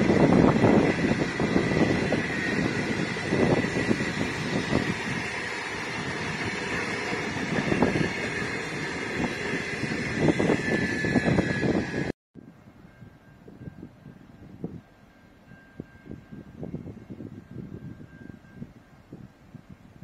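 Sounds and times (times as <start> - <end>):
train carriages rolling on rails: 0.0 - 12.1
wind buffeting microphone: 0.0 - 20.0.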